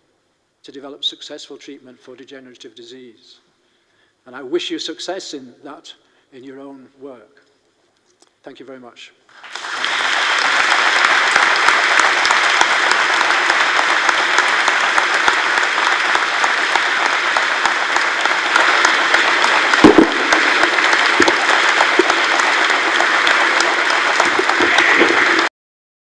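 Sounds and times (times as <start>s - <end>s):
audience applauding: 9.3s - 25.5s
loud thump: 19.8s - 20.5s.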